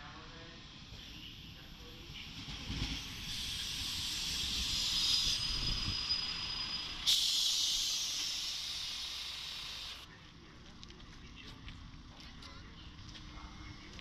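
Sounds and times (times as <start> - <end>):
railbus moving slowly: 0.0 - 14.0
brake air hissing: 3.0 - 10.1.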